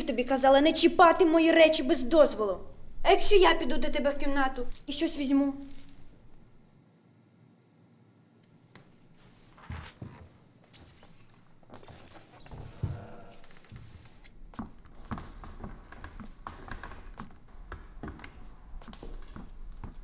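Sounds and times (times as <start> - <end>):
child's light footsteps: 12.6 - 20.0.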